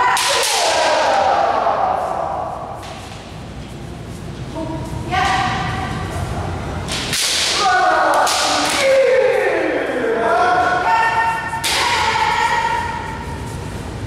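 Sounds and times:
people shouting: 0.0s - 2.8s, 7.2s - 13.2s.

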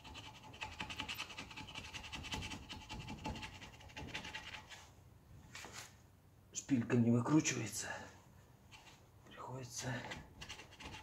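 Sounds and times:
rapid hand-tool strokes on metal: 0.0s - 4.7s, 10.3s - 11.0s.

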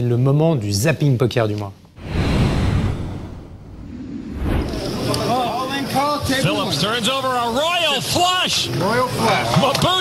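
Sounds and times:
low rumble: 2.0s - 5.0s
whoosh sound effect: 2.0s - 5.1s.

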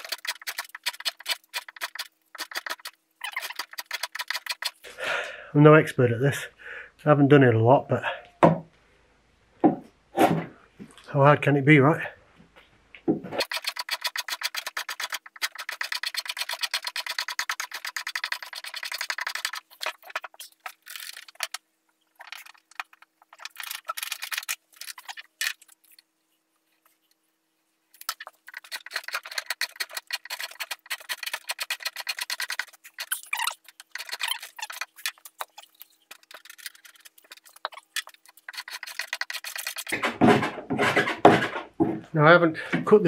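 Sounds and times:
drawknife scraping wood: 28.0s - 41.7s.

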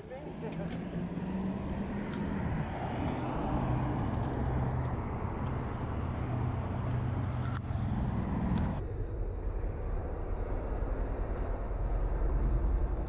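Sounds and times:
passing traffic rushing: 0.0s - 8.8s
vehicle engine hum: 0.0s - 13.0s.

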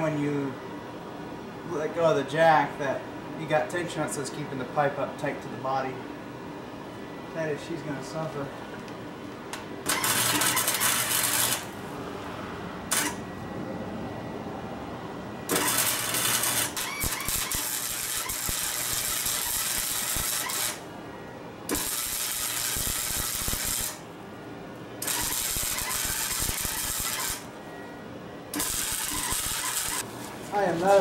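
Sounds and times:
welder arc crackling: 9.9s - 11.7s, 15.5s - 20.8s, 21.7s - 24.0s, 25.0s - 27.5s, 28.5s - 30.1s.

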